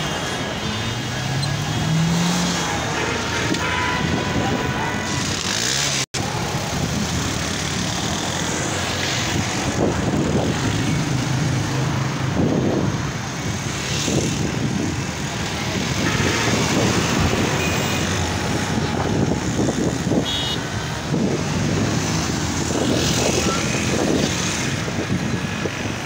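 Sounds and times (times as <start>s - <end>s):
traffic driving by on highway: 0.0s - 26.0s.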